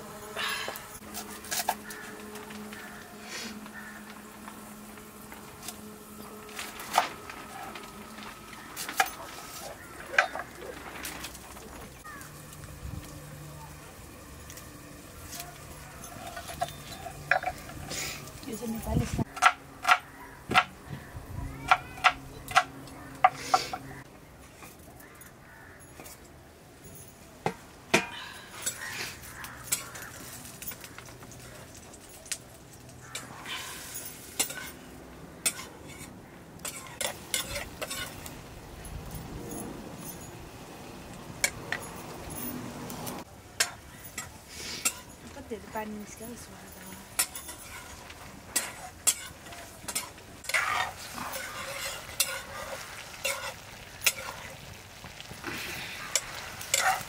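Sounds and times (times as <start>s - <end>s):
ladle stirring and scraping pan: 15.2s - 18.4s, 33.2s - 38.4s, 43.6s - 45.3s, 47.0s - 57.0s.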